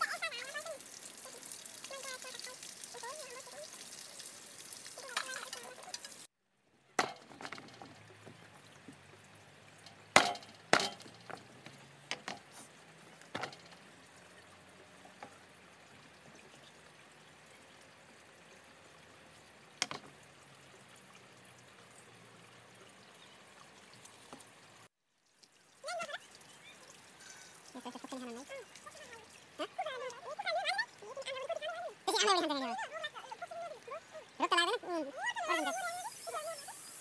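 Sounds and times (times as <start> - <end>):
knocks and taps on bamboo slats: 7.0 - 8.4, 10.1 - 12.5, 13.3 - 13.8, 19.8 - 20.2.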